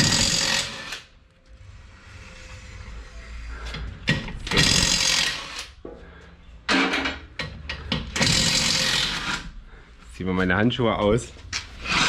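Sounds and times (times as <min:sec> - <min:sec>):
impact wrench bursts: 0:04.5 - 0:05.7, 0:08.0 - 0:09.5.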